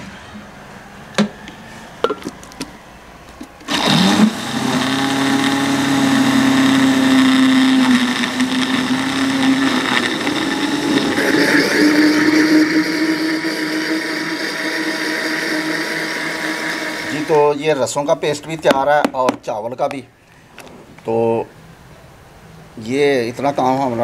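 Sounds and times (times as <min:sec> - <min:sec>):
electric blender grinding: 0:03.6 - 0:17.7.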